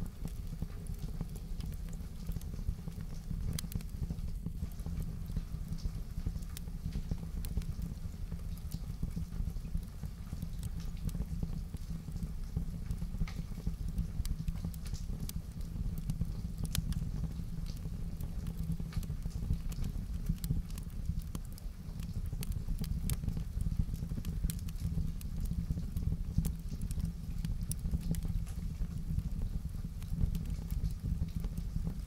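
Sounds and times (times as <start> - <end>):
wood fire crackling and popping: 0.0 - 32.0.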